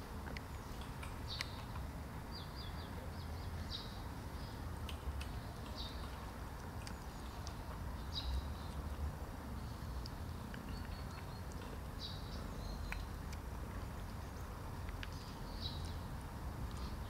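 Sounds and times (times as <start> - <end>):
small birds chirping: 0.0 - 17.0
faint clicks: 12.8 - 16.0.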